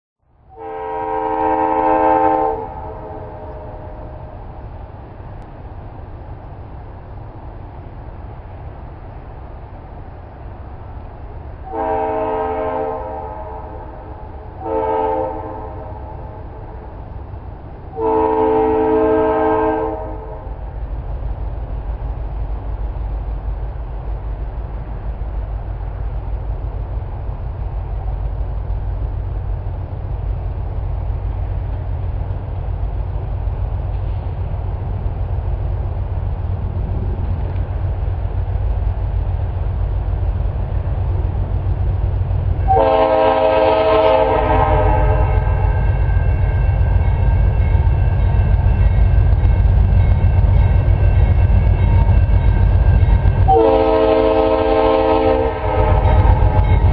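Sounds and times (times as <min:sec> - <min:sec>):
train rumbling: 0:00.2 - 0:56.9
locomotive air horn blasts: 0:00.5 - 0:04.4, 0:11.7 - 0:14.0, 0:14.6 - 0:16.9, 0:17.9 - 0:20.6, 0:42.6 - 0:45.8, 0:53.4 - 0:56.9.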